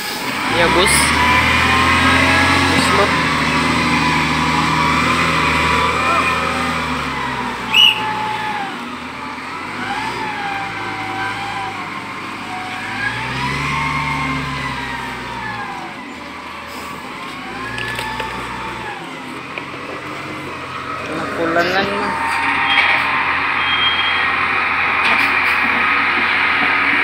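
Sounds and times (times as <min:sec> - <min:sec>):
diesel engine revving: 0:00.0 - 0:27.0
loud high-pitched sound: 0:21.3 - 0:26.1.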